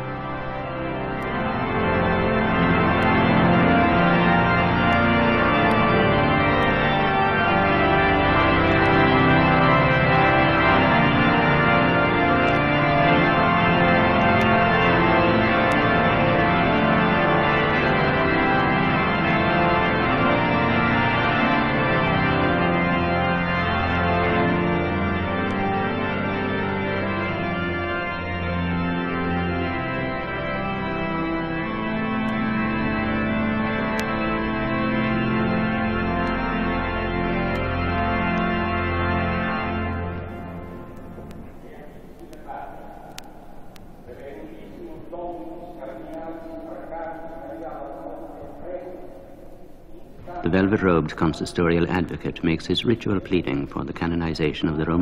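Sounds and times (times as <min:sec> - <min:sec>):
organ playing slow chords: 0:00.0 - 0:55.0.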